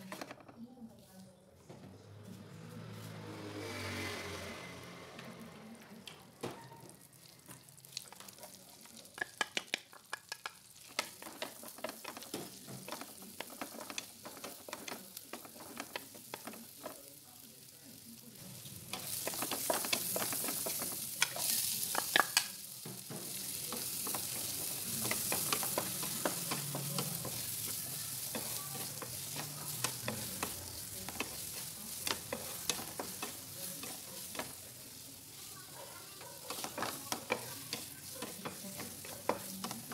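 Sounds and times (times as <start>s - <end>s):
butter sizzling in a frying pan: 6.4s - 39.9s
wooden spatula scraping a pan: 10.8s - 17.1s, 18.6s - 22.2s, 22.9s - 39.9s.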